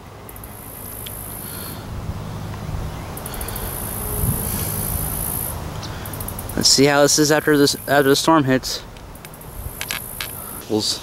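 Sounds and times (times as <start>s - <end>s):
insects buzzing high-pitched: 0.3s - 11.0s
low rumble: 1.7s - 6.6s.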